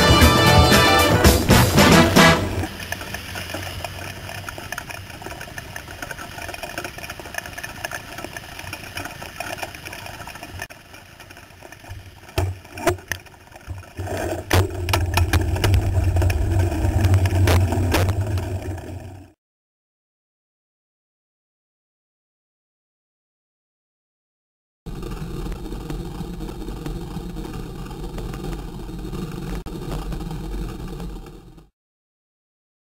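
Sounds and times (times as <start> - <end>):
road traffic: 0.0 - 9.9
wet road hiss: 0.9 - 12.8
low rumble: 14.0 - 19.4, 24.9 - 31.7.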